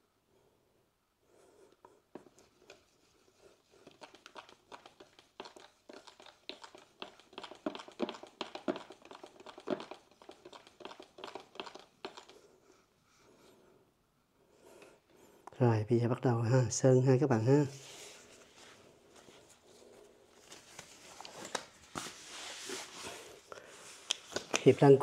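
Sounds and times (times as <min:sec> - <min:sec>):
stir stick scraping paint can: 0:02.2 - 0:12.4.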